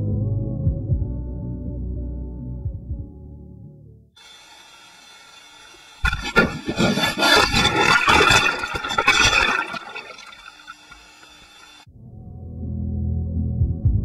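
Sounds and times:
rushing water: 0:04.2 - 0:11.8
faint water hiss: 0:04.2 - 0:11.9.

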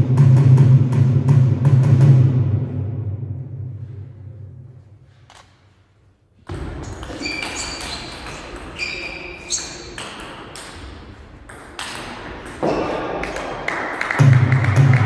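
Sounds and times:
table tennis ball clicks and pings: 0:07.0 - 0:13.4.

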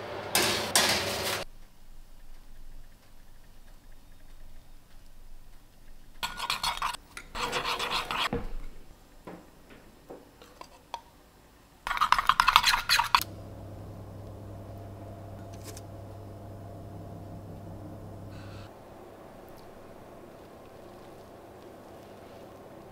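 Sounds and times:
metal spoon scraping ceramic bowl: 0:06.2 - 0:08.3, 0:11.9 - 0:13.2
steady low hum: 0:13.2 - 0:22.9.

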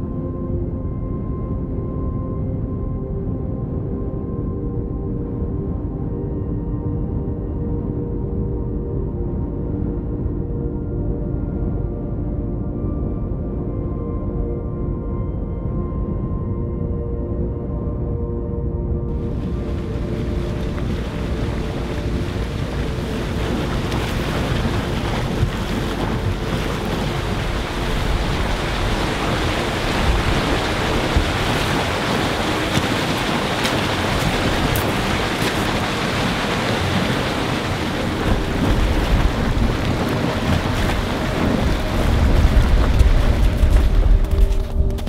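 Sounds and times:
wind buffeting microphone: 0:19.1 - 0:45.0.

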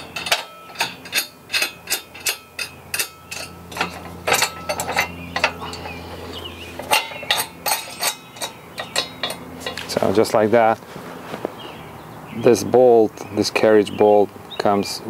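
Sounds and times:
metal hardware clinking on steel: 0:00.0 - 0:06.0, 0:06.8 - 0:10.3.

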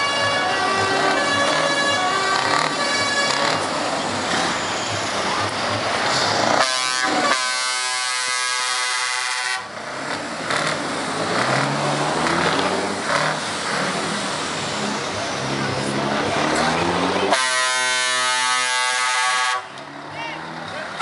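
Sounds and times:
truck air horn blast: 0:00.0 - 0:03.6, 0:06.5 - 0:09.7, 0:17.3 - 0:19.8
diesel truck engines running: 0:00.0 - 0:21.0.

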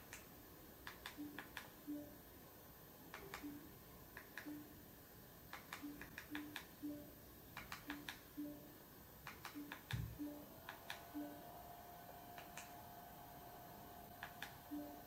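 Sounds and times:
short low beeps: 0:09.6 - 0:10.5.

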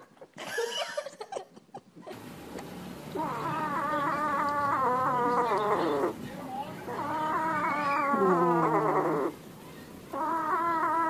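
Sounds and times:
cat yowling: 0:03.2 - 0:06.2, 0:06.9 - 0:09.4, 0:10.1 - 0:11.0
cat squeaky calls: 0:06.9 - 0:09.3.

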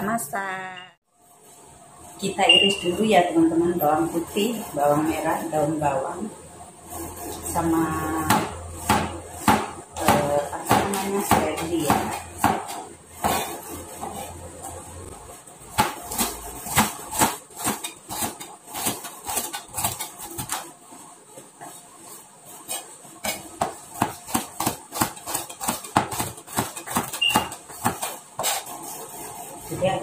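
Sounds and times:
knife chopping on cutting board: 0:08.2 - 0:14.2, 0:15.7 - 0:20.7, 0:22.7 - 0:28.7.

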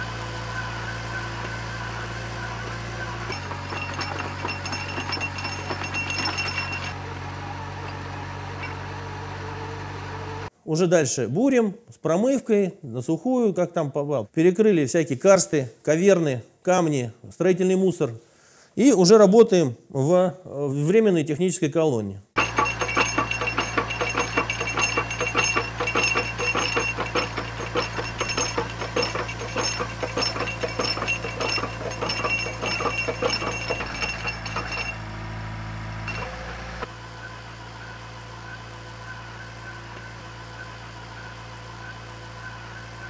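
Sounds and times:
drilling rig engine hum: 0:00.0 - 0:10.5, 0:22.4 - 0:43.0
metallic clinking and rattling: 0:03.0 - 0:07.0, 0:07.8 - 0:08.8, 0:22.4 - 0:35.3, 0:36.0 - 0:36.4.

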